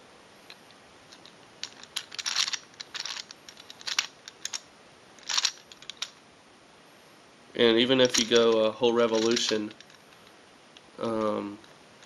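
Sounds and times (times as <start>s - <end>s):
plastic gears clattering: 1.1s - 4.6s, 5.2s - 6.1s, 8.0s - 10.0s
plastic puzzle cube clicking: 1.2s - 4.6s, 5.2s - 6.1s, 9.1s - 10.0s.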